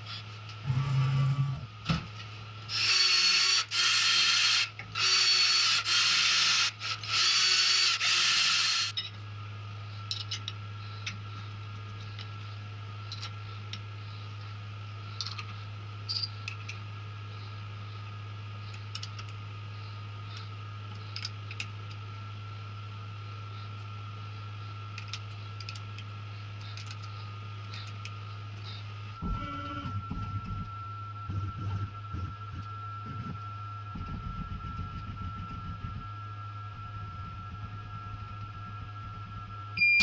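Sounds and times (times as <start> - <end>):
low hum: 0.0 - 40.0
cordless drill motor whining: 2.7 - 9.0.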